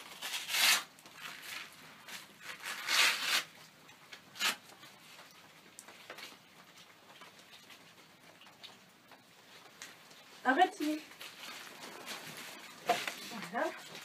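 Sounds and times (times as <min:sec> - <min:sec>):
velcro strap ripping open: 0:00.0 - 0:03.6, 0:04.4 - 0:04.6
small rustles and clicks: 0:03.5 - 0:14.0.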